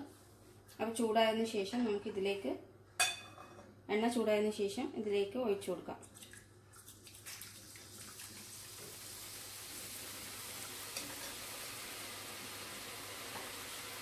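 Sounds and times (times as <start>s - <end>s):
batter sizzling in hot oil: 7.7s - 14.0s.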